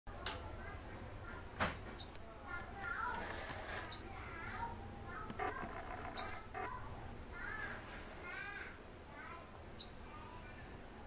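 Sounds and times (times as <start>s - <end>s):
soft bird chattering: 1.2s - 3.2s, 3.8s - 8.6s, 9.6s - 10.4s
high sharp bird chirps: 2.0s - 2.3s, 3.9s - 5.2s, 5.9s - 6.8s, 9.6s - 10.2s.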